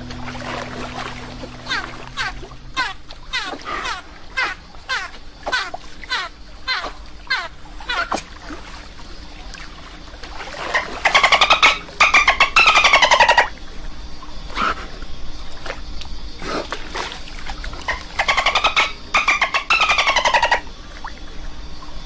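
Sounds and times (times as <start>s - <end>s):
dolphin chattering clicks: 1.6s - 8.2s, 10.7s - 13.5s, 17.8s - 20.7s.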